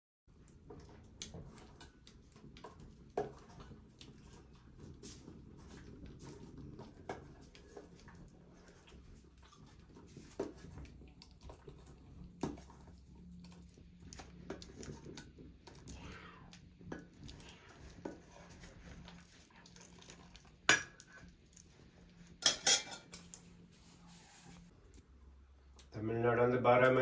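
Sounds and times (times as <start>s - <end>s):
ladle scraping and clinking in pot: 22.3s - 23.4s.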